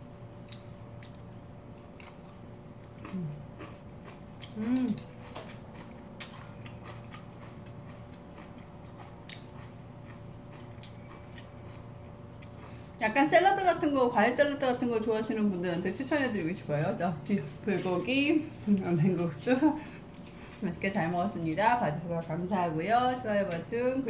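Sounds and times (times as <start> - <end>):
faint steady hum: 0.0 - 24.0
chewing crunchy food: 0.4 - 13.1, 18.6 - 21.7
person humming: 4.6 - 5.1.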